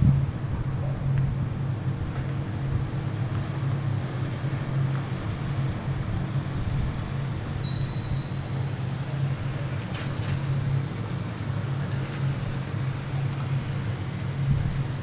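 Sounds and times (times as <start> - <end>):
traffic engine hum: 0.0 - 15.0
high thin squeal: 7.6 - 8.6.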